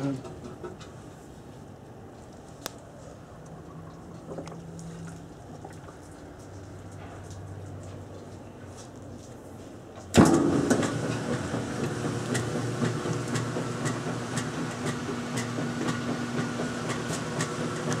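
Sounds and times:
washing machine humming: 0:10.2 - 0:18.0.

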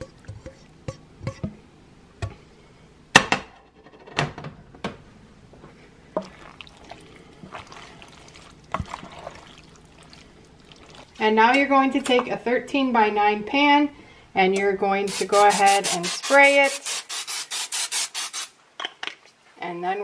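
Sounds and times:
wet sauce mixing sounds: 0:00.0 - 0:01.5, 0:06.1 - 0:11.3.

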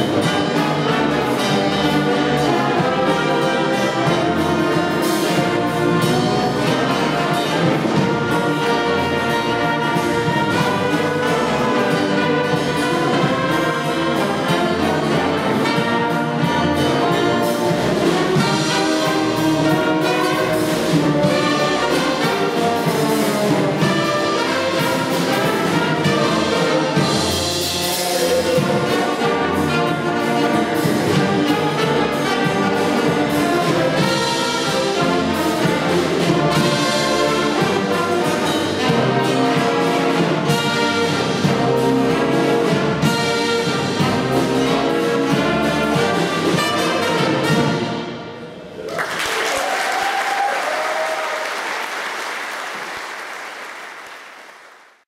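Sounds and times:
wind band playing: 0:00.0 - 0:55.0
audience applause: 0:48.7 - 0:55.0.

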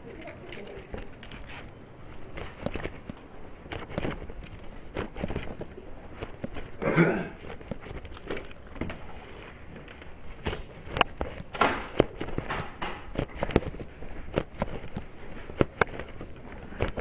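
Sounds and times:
rustling: 0:00.0 - 0:17.0
sharp knocks and clicks: 0:10.4 - 0:16.2.

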